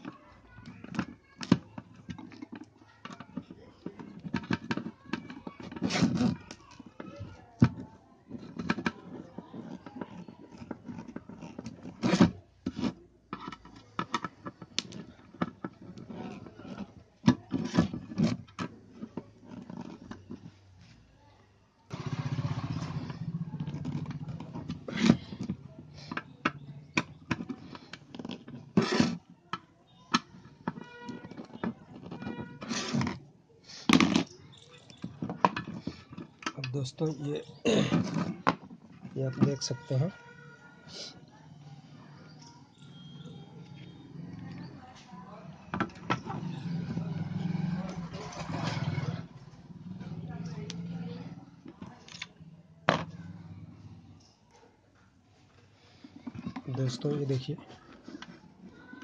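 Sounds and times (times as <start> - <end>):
metal and plastic parts knocking: 0.0 - 20.5, 22.8 - 33.2, 33.9 - 37.1, 45.6 - 48.9.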